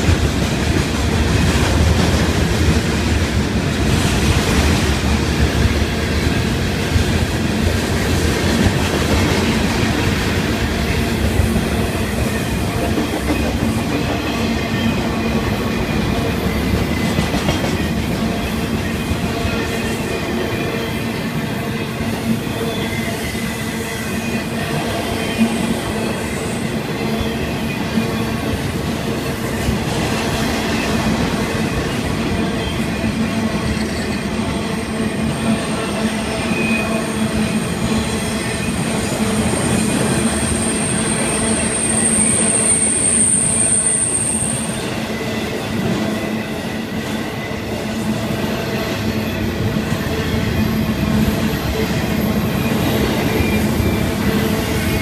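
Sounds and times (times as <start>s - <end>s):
freight train rumbling past: 0.0s - 55.0s
high wheel squeal: 30.8s - 55.0s.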